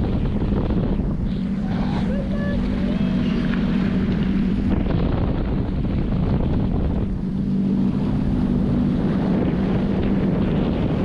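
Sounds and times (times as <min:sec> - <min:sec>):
jet ski engine running: 0:00.0 - 0:11.0
wind buffeting microphone: 0:00.0 - 0:11.0.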